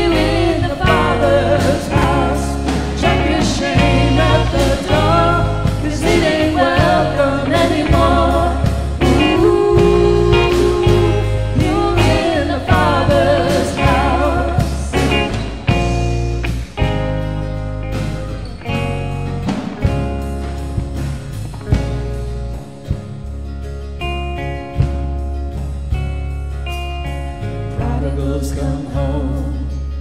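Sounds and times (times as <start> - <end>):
vocalists singing: 0.0 - 15.9, 27.8 - 30.0
drum kit: 0.0 - 29.6
acoustic and electric guitars: 0.0 - 30.0.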